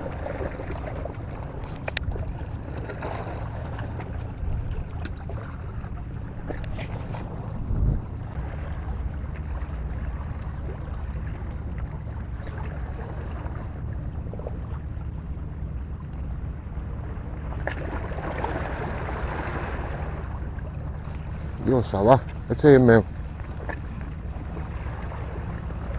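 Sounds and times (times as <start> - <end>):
boat motor humming: 0.0 - 25.9
wind noise: 6.5 - 8.4.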